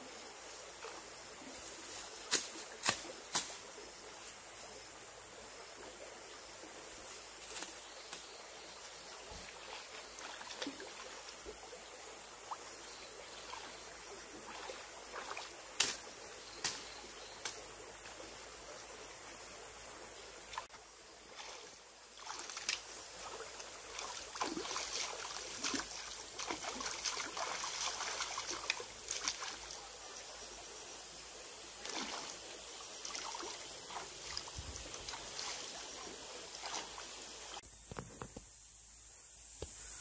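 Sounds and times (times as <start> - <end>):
shallow stream running: 0.0 - 37.6
water splashing and sloshing: 6.8 - 19.0, 20.4 - 29.9, 31.8 - 37.6.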